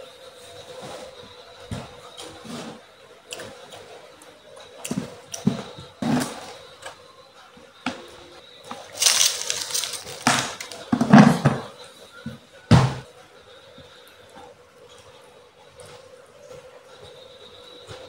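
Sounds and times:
rice scraping rustle: 0:09.0 - 0:10.8
plastic container knocks and clatters: 0:09.0 - 0:11.7.

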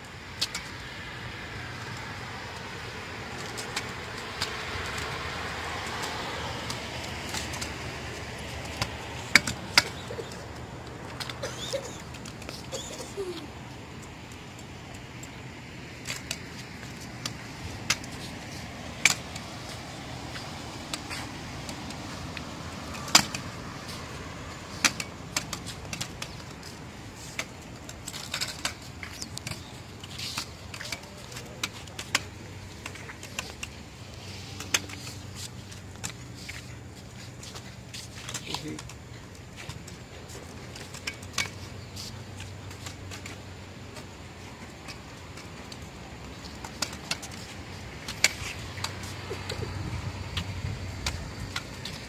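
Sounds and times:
kick scooter rolling on concrete: 0:00.3 - 0:52.0.

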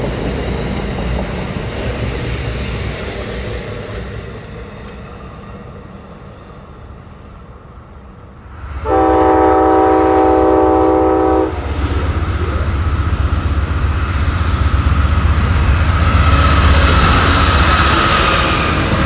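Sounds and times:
diesel locomotive rumble: 0:00.0 - 0:19.0
locomotive horn chord: 0:08.8 - 0:12.2.

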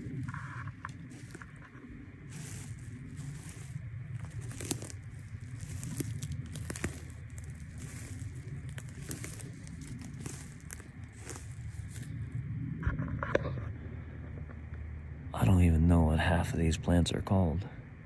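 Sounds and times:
footsteps crunching on dry needles: 0:00.0 - 0:12.3
steady low rumble: 0:00.0 - 0:18.0.

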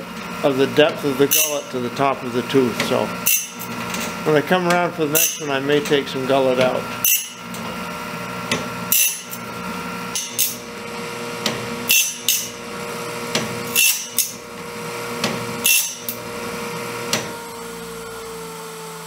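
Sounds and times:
motor hum: 0:00.0 - 0:19.0
grinding wheel on blade teeth: 0:00.3 - 0:17.4.

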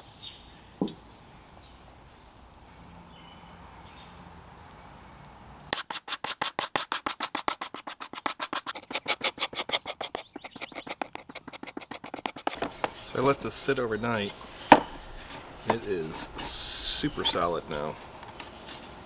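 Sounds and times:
scraper scraping wood: 0:05.7 - 0:19.0.

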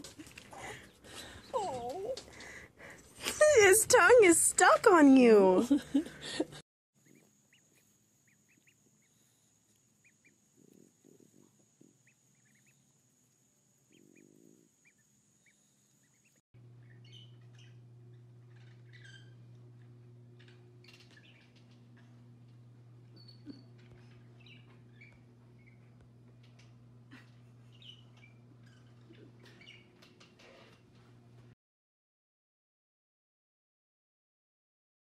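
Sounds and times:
steady low hum: 0:00.0 - 0:31.6
ducklings peeping: 0:07.0 - 0:09.4, 0:11.9 - 0:12.9, 0:13.9 - 0:22.2, 0:23.1 - 0:30.2
faint chirps and clicks: 0:07.0 - 0:14.2, 0:14.8 - 0:30.3.

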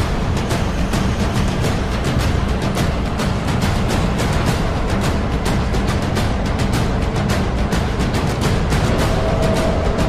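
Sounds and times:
orchestral film music: 0:00.0 - 0:10.0
sharp percussion strokes: 0:08.1 - 0:10.0.

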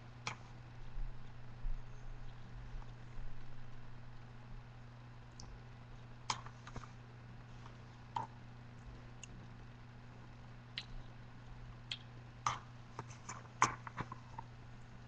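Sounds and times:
eating smacks: 0:11.9 - 0:14.5.

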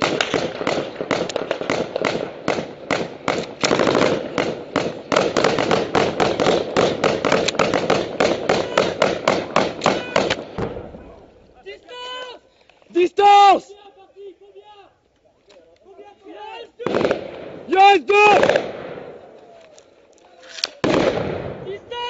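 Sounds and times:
rapid rifle gunfire: 0:00.0 - 0:10.6, 0:18.3 - 0:19.1.

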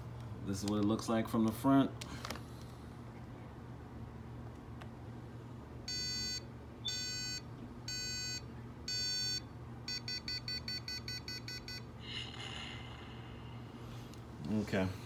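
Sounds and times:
long electronic beeps: 0:05.9 - 0:11.9.

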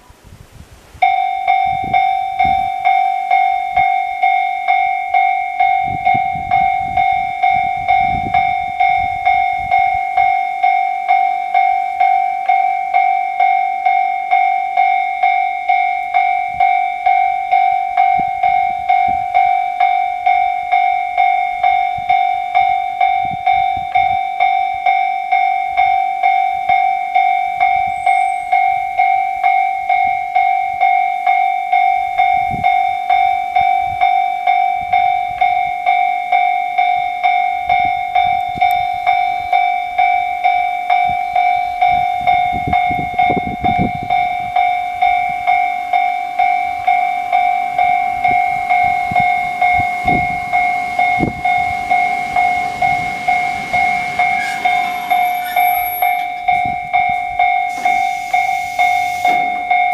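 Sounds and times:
level crossing bell ringing: 0:01.0 - 0:59.9
train rumble and clatter: 0:04.7 - 0:10.4, 0:36.7 - 0:59.9.

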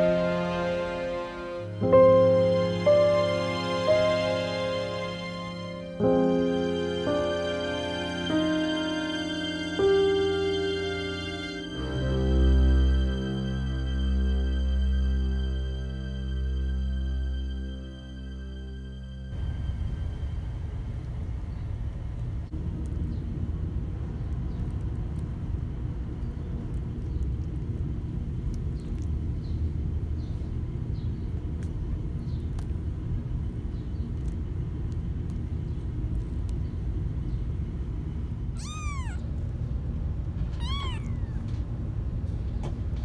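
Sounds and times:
low rumble: 0:01.6 - 0:43.0
kittens mewing: 0:38.6 - 0:39.3, 0:40.6 - 0:41.5.

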